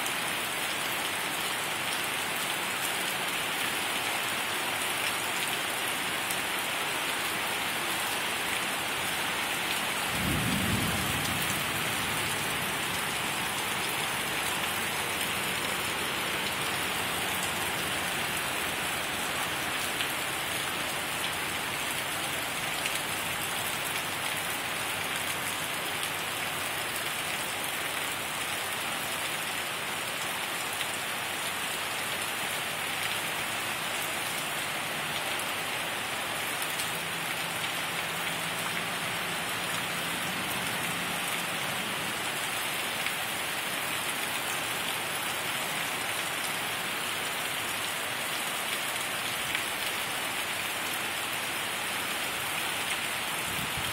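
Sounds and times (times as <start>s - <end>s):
heavy rain falling: 0.0s - 53.9s
low rumble of thunder: 10.2s - 13.2s.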